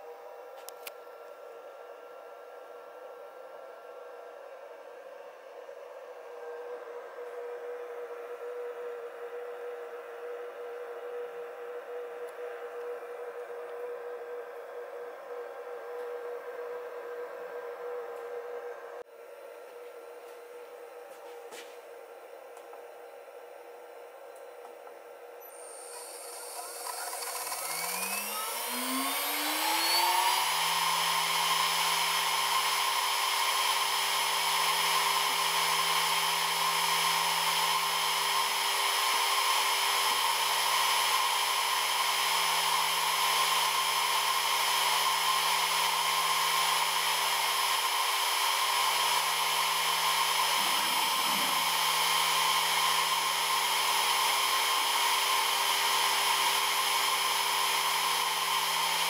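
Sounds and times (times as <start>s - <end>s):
router spindle whining: 24.2s - 59.0s.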